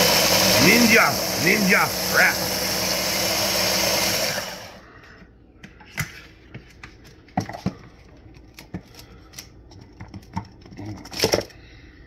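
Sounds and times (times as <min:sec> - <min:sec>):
food chopper motor running: 0:00.0 - 0:04.8.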